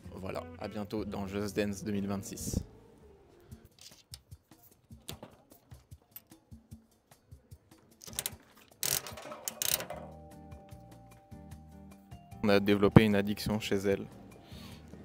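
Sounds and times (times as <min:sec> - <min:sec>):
vending machine knob clicks and rattles: 0:08.0 - 0:10.1
capsules clattering: 0:08.0 - 0:10.2.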